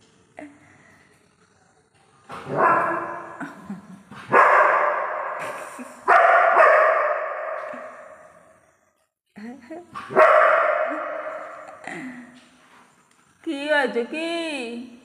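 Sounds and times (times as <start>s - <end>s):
dog barking: 2.4s - 3.4s, 4.3s - 5.5s, 6.1s - 8.2s, 10.1s - 11.7s.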